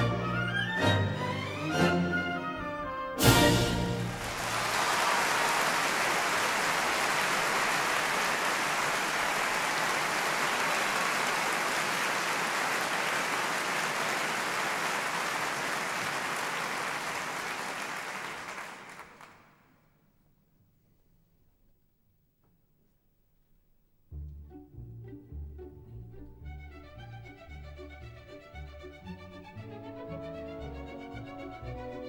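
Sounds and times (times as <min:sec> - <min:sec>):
audience applauding: 0:03.9 - 0:19.7.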